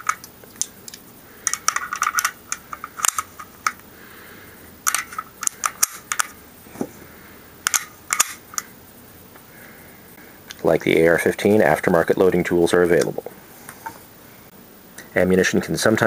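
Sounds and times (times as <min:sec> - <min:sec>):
cartridges clicking into magazine: 0:04.8 - 0:06.4, 0:07.6 - 0:08.7.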